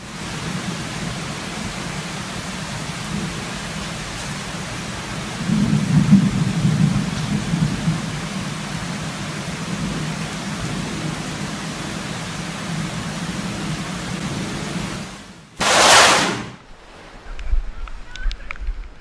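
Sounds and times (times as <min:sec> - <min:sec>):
heavy rain: 0:00.0 - 0:19.0
loud thunder crack: 0:15.6 - 0:18.7.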